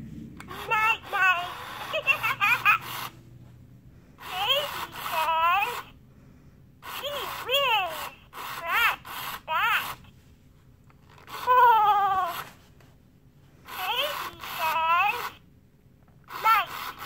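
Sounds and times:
toy electronic voice babbling: 0.5s - 3.1s, 4.2s - 6.0s, 6.8s - 10.1s, 11.2s - 12.6s, 13.7s - 15.4s, 16.3s - 17.0s.

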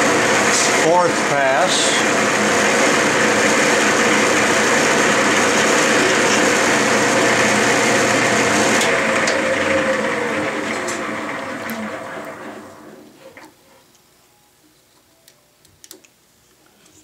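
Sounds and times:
lathe spindle coasting down: 0.0s - 13.1s
metal lathe motor humming: 0.0s - 13.1s.

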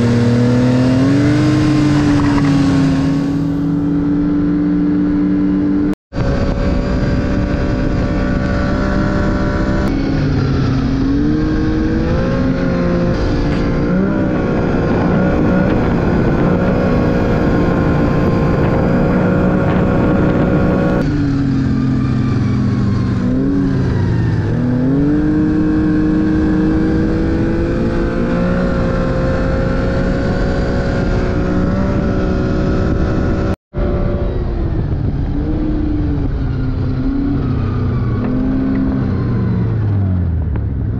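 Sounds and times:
snowmobile engine revving: 0.0s - 34.7s.

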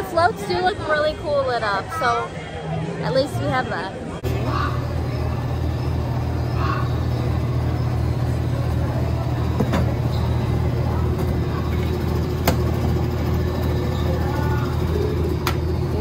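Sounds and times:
vehicle engine humming: 4.0s - 16.0s.

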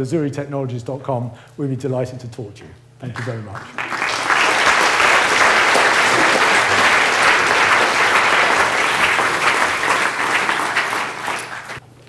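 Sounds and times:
audience applauding: 3.2s - 11.8s.

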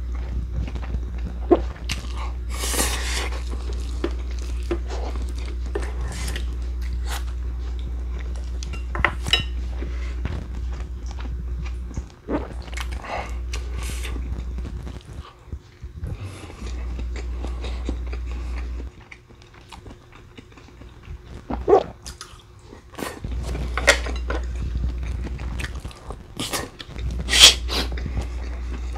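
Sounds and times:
steady low hum: 0.0s - 28.9s
chewing: 0.2s - 8.7s, 16.2s - 27.1s
utensils clinking against dishes: 8.6s - 9.6s.

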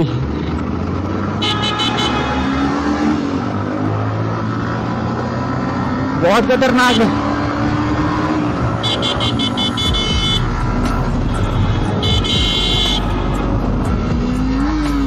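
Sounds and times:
long horn blast: 1.4s - 2.8s, 8.8s - 13.5s
motorcycle engine running: 3.5s - 15.0s
horn beeps: 8.7s - 13.5s.

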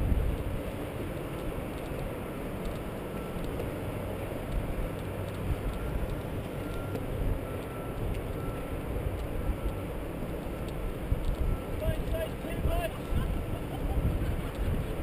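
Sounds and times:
wind buffeting microphone: 0.0s - 3.6s, 7.0s - 15.0s
light ticks: 1.2s - 14.9s.

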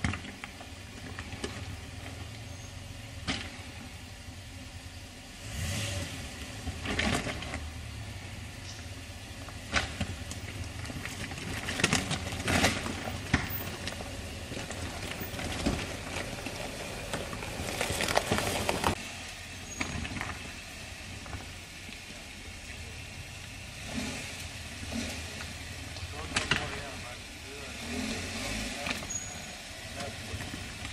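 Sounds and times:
car engine running low: 0.0s - 30.9s
stones crunching under tyres: 8.5s - 22.1s.

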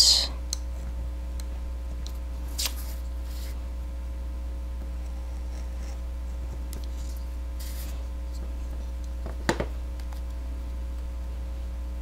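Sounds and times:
steady electrical hum: 0.0s - 12.0s
craft knife scraping paper: 6.9s - 8.0s.

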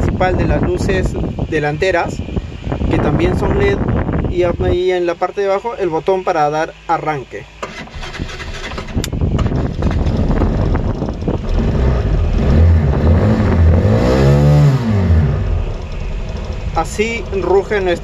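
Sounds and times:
motorcycle engine starting and revving: 7.6s - 18.0s.

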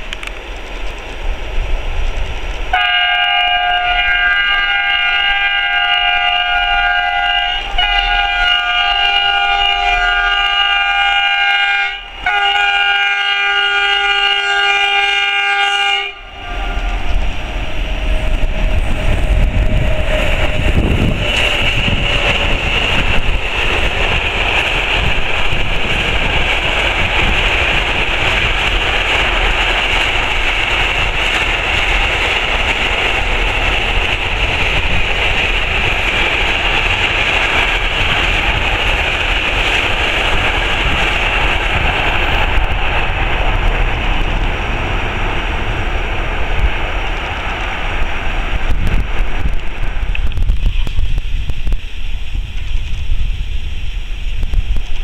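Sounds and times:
train wheels rushing on rails: 0.0s - 55.0s
locomotive chord horn blasts: 2.7s - 18.1s.

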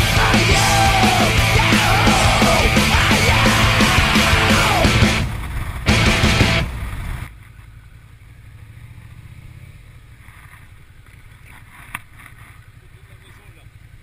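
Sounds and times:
music: 0.0s - 5.3s, 5.9s - 6.7s
motorcycle engine at low revs: 0.0s - 14.0s.

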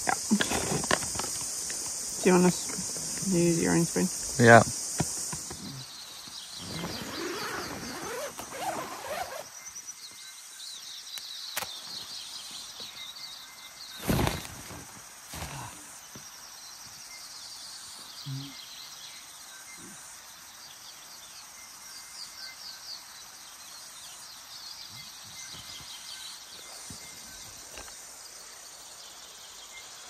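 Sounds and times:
steady high hiss: 0.0s - 30.0s
faint high chirping calls: 5.5s - 14.4s, 20.6s - 30.0s.

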